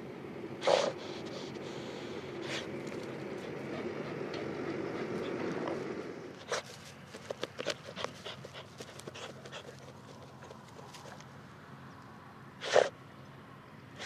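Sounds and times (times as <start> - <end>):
dog snorting: 0.6 - 11.2, 12.6 - 12.9
dog scuffing and sniffing: 2.4 - 11.3.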